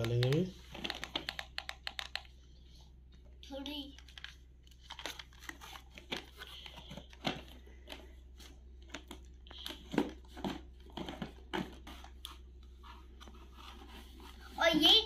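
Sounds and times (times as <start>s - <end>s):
cardboard packaging rustling: 4.2s - 14.8s.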